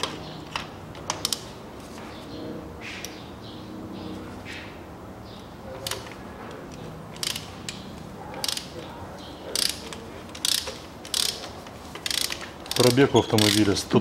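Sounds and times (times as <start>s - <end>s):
ratchet wrench clicking: 5.8s - 7.8s, 8.4s - 8.8s, 9.5s - 13.8s.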